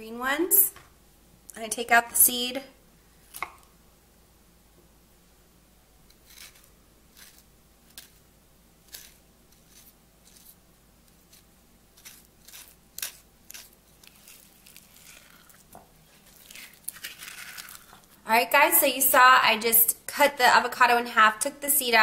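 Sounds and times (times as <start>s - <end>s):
spoon scraping avocado: 6.1s - 8.2s, 8.8s - 18.2s.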